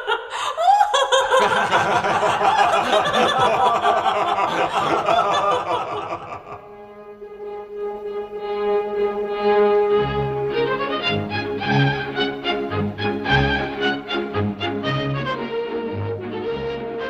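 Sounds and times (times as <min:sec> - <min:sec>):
high voice laughing: 0:00.0 - 0:06.7
several people laughing: 0:00.0 - 0:06.8
quiet orchestral music: 0:01.5 - 0:17.0.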